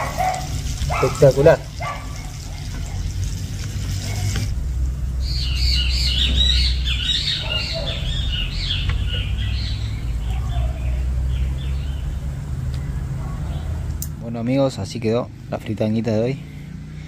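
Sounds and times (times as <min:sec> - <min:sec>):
birds chirping: 0:00.0 - 0:17.0
low rumble: 0:02.3 - 0:14.3.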